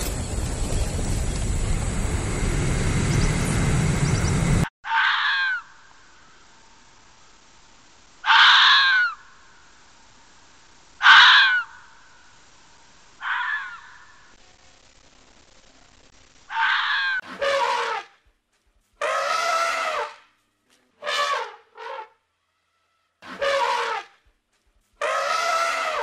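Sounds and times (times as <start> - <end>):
steady rushing noise: 0.0 - 4.7
fox scream-like calls: 4.9 - 5.8, 8.2 - 9.3, 11.0 - 12.0, 13.2 - 14.2, 16.5 - 18.0, 19.0 - 20.2, 25.0 - 26.0.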